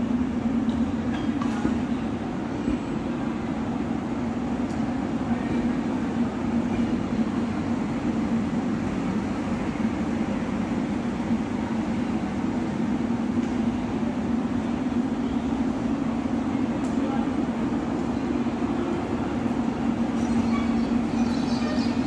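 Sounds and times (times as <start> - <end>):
train coaches rolling past: 0.0 - 22.0.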